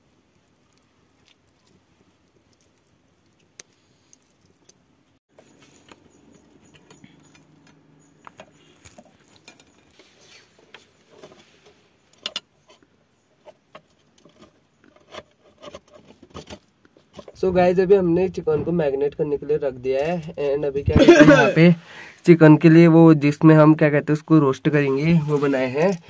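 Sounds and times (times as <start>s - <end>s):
wire clinking and scraping on rods: 5.3s - 17.4s, 24.9s - 26.0s.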